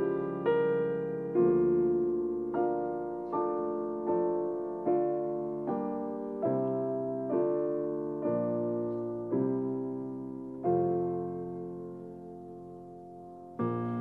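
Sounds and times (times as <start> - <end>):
slow piano chords: 0.0 - 14.0.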